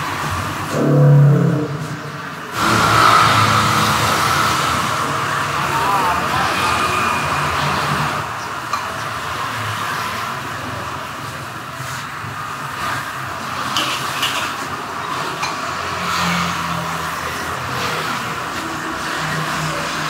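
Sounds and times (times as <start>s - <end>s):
gas burner noise: 0.0s - 16.0s
metal ladle scraping a wok: 0.7s - 4.9s.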